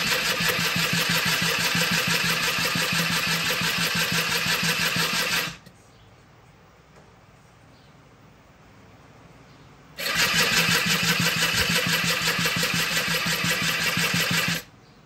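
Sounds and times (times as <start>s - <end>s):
electric starter cranking engine: 0.0s - 5.7s, 10.0s - 14.7s.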